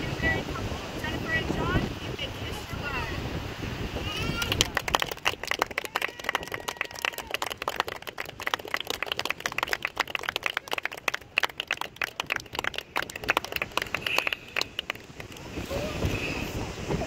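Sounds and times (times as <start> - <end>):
people clapping: 4.2 - 15.7.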